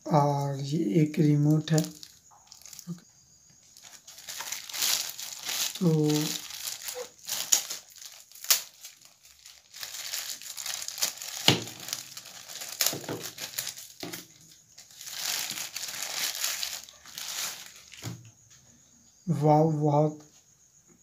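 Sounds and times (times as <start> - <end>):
plastic bag crinkling: 1.4 - 3.0, 3.7 - 18.2.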